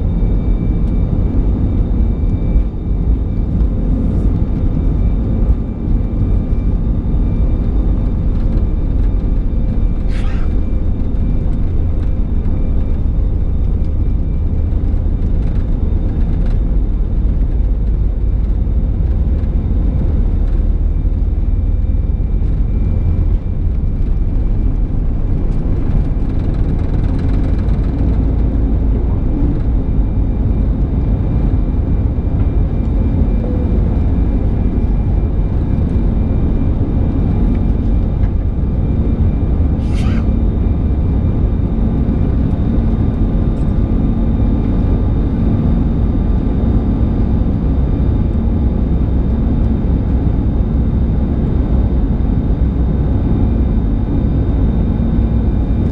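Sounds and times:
faint engine whines: 0:00.0 - 0:55.9
jet engines rumbling: 0:00.0 - 0:55.9.

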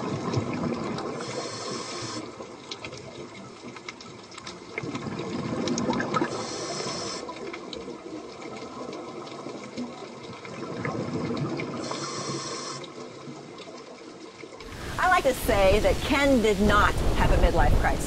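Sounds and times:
regulator inhale hiss: 0:01.2 - 0:02.2, 0:06.3 - 0:07.3, 0:11.8 - 0:12.9
underwater air bubbling: 0:04.6 - 0:14.0.

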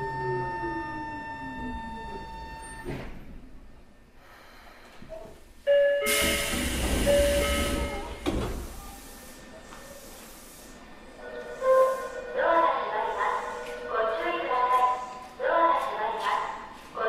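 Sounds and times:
pneumatic door hiss: 0:06.1 - 0:10.8.

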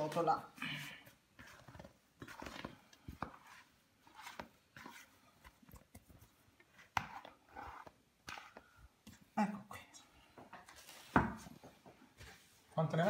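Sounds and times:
sticky dough being handled: 0:01.1 - 0:09.4.

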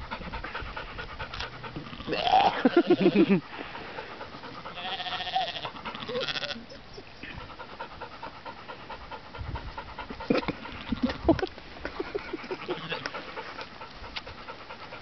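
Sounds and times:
sheep chewing and snuffling: 0:00.2 - 0:15.0
sheep snorting: 0:00.3 - 0:15.0
sheep bleating: 0:01.9 - 0:03.2, 0:04.8 - 0:06.8, 0:12.6 - 0:13.1.

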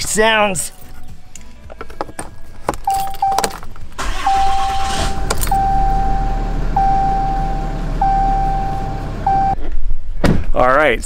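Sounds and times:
keys clicking in ignition: 0:00.7 - 0:06.2
diesel engine cranking and idling: 0:03.0 - 0:09.8
warning chime dinging: 0:04.2 - 0:09.6.

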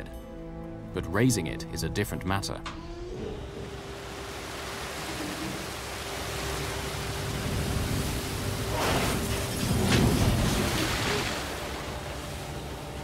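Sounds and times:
wind: 0:02.6 - 0:13.0
rough sea washing: 0:03.6 - 0:13.0.

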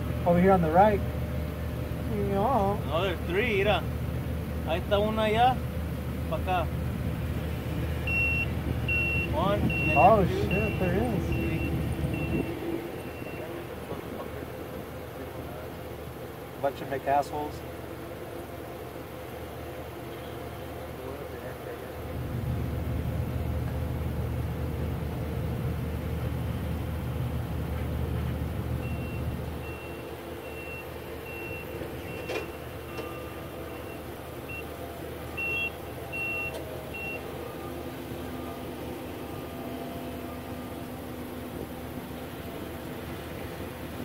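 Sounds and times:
vehicle reversing alarm beeping: 0:08.0 - 0:15.6, 0:28.7 - 0:44.0.

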